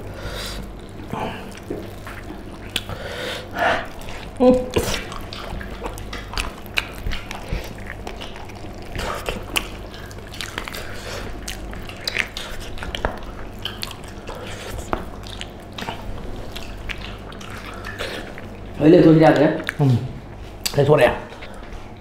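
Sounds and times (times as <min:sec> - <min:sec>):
wet chewing and biting: 0:00.0 - 0:20.8
lip smacking: 0:00.0 - 0:21.8
food squished by hand: 0:03.8 - 0:19.9.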